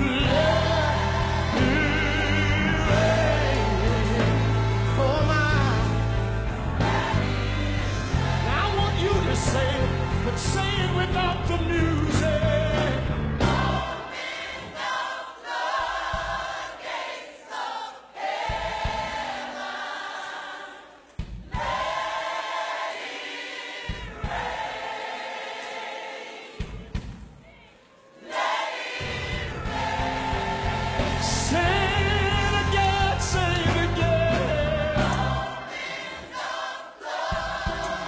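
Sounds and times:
band playing: 0.0s - 17.0s, 28.3s - 38.0s
gospel choir singing: 0.0s - 38.0s.

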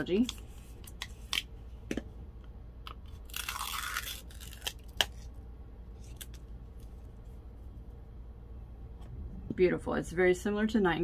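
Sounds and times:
foil seal crinkling: 2.9s - 5.3s.

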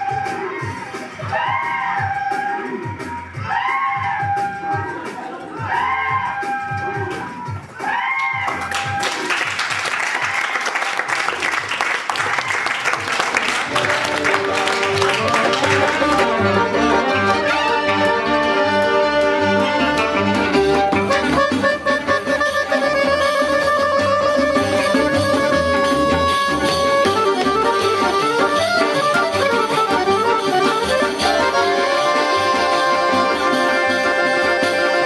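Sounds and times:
clarinet: 13.7s - 35.0s
fiddle: 13.8s - 35.0s.

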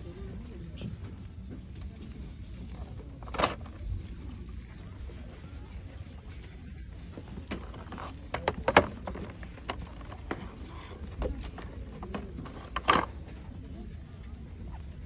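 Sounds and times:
metal shopping cart rattling: 5.0s - 13.7s.

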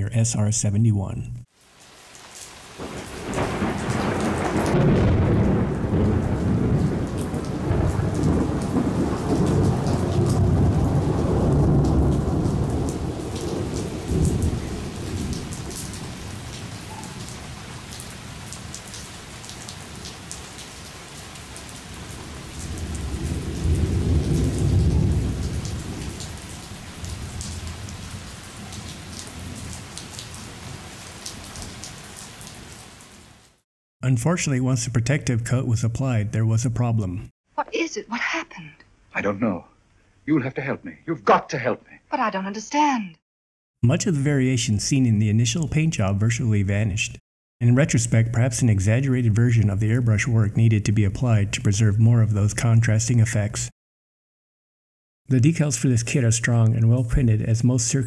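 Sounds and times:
steady rain: 1.5s - 33.6s
rolling thunder: 2.8s - 18.6s, 21.9s - 30.8s.

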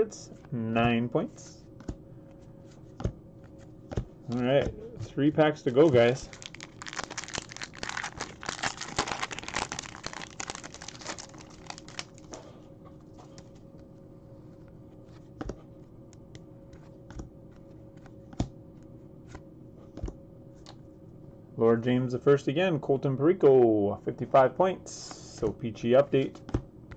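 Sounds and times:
foil wrapper crinkling and tearing: 5.7s - 12.4s.

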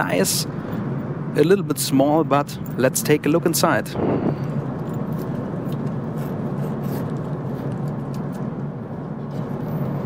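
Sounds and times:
airliner cabin noise: 2.6s - 10.0s.

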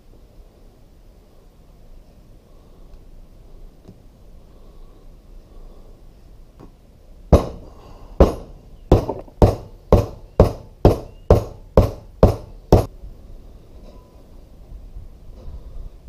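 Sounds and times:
hammer strikes on metal rod: 7.3s - 7.6s, 8.2s - 12.9s.

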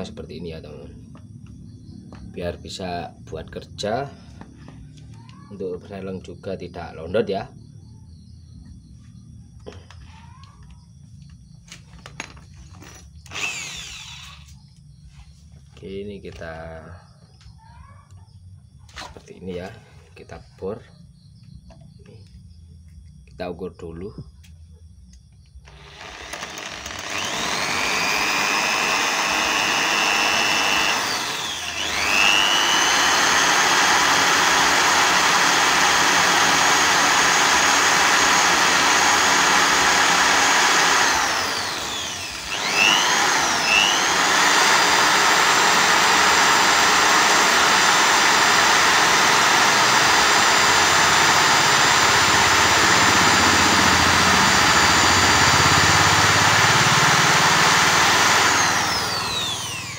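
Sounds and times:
electric drill whining: 11.7s - 14.7s, 25.6s - 59.9s.

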